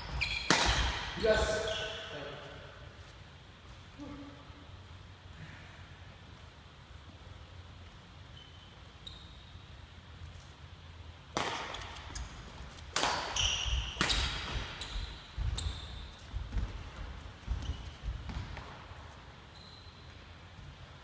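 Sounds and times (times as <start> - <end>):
rackets hitting shuttlecock: 0.0 - 2.0, 11.2 - 16.9, 17.5 - 19.0
shoe squeaks: 0.0 - 2.8, 8.2 - 9.8, 13.2 - 16.7, 17.4 - 18.3, 19.4 - 20.5
footsteps on wooden court: 14.4 - 19.3.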